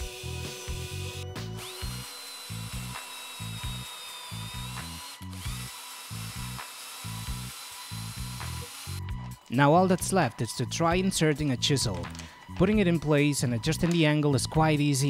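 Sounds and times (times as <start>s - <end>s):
drill press humming: 0.0s - 9.0s
hand drill whining: 0.0s - 9.4s.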